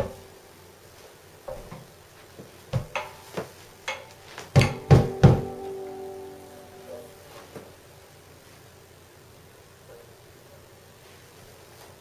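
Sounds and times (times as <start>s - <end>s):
banjo strings strummed: 3.9s - 8.1s
knock: 4.6s - 5.6s.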